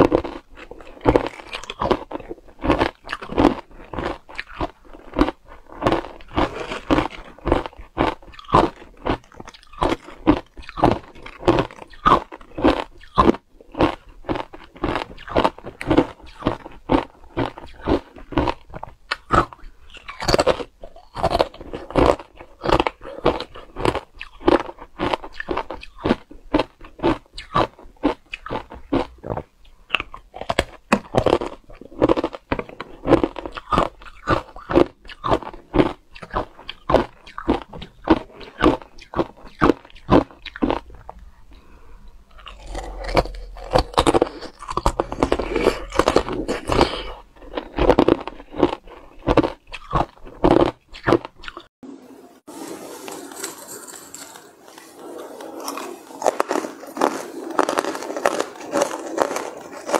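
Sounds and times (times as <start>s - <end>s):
ice being crunched by teeth: 0.0s - 41.2s, 42.4s - 51.7s, 55.4s - 59.9s.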